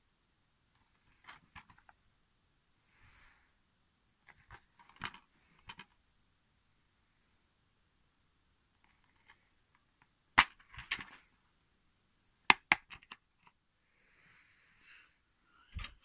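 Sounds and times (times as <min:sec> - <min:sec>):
plastic case clicks and taps: 0:12.5 - 0:13.2.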